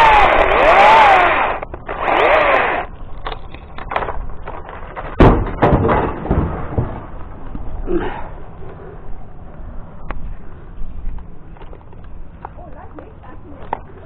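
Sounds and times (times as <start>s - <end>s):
chainsaw revving: 0.0s - 2.9s
knocks and thuds: 5.0s - 7.7s.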